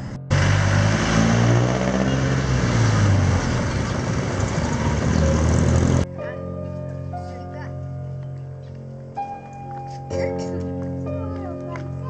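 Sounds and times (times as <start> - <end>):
diesel engine passing by: 0.0 - 6.1
road and tyre noise: 0.0 - 6.1.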